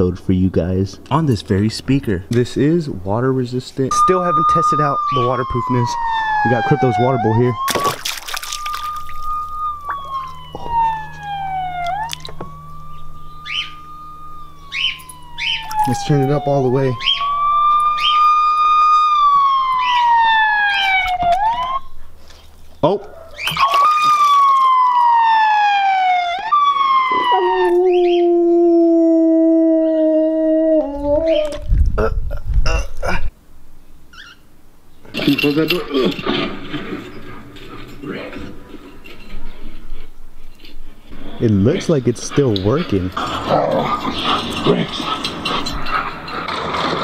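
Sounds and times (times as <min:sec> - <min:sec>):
wailing siren from speaker: 0:03.9 - 0:22.2, 0:23.3 - 0:31.7
dog howling: 0:04.1 - 0:07.9, 0:08.5 - 0:21.9, 0:23.0 - 0:31.7, 0:43.2 - 0:47.0
water drips and splashes: 0:07.6 - 0:09.6, 0:23.4 - 0:25.0.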